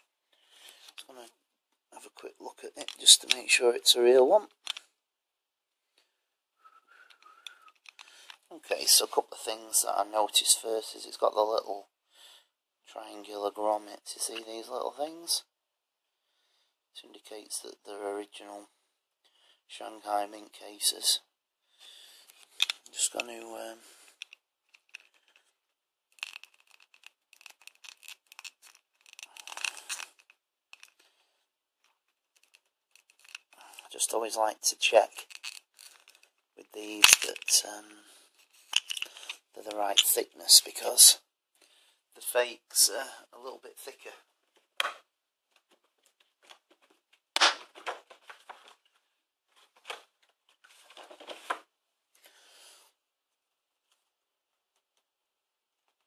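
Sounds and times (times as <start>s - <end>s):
plastic capsule clicks and scrapes: 2.8s - 3.5s, 4.5s - 4.9s, 7.2s - 8.5s, 22.3s - 23.4s, 24.1s - 25.5s, 26.1s - 31.1s, 31.8s - 34.2s, 34.8s - 37.7s, 38.4s - 40.8s
small plastic clicks: 4.6s - 4.9s, 7.2s - 8.4s, 26.1s - 31.0s, 31.8s - 33.6s
plastic crinkling: 26.2s - 31.0s, 31.9s - 34.0s, 35.1s - 36.4s.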